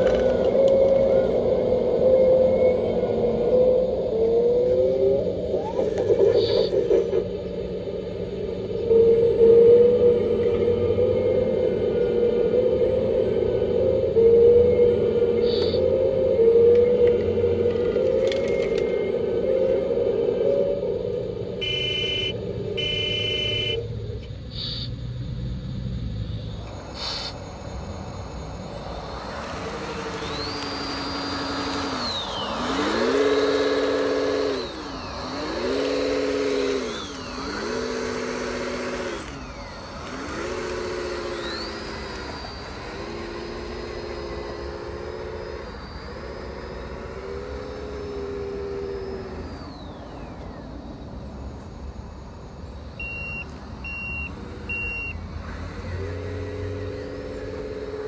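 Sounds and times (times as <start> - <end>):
high whine: 0.0 - 58.0
model engine sounds revving: 0.0 - 58.0
short reversing beeps: 21.6 - 23.8, 53.0 - 55.2.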